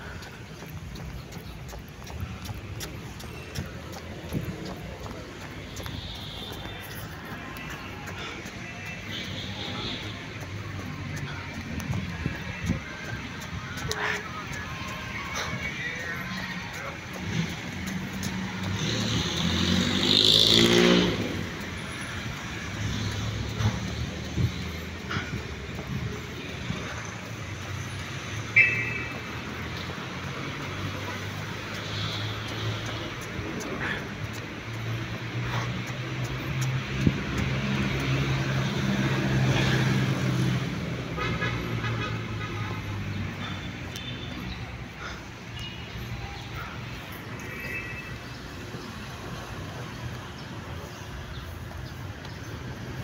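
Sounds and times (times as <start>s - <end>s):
vehicle passing: 0.0s - 53.0s
vehicle engine passing: 9.8s - 25.3s.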